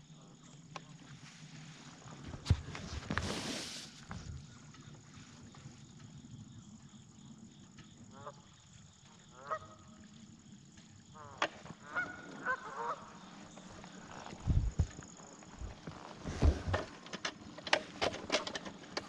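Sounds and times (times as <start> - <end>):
geese honking: 9.4 - 9.8, 11.2 - 13.3.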